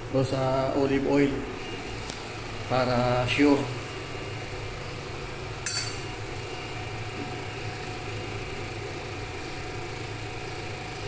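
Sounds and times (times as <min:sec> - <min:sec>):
steady low hum: 0:00.0 - 0:11.0
metallic clink of cookware: 0:05.6 - 0:06.1.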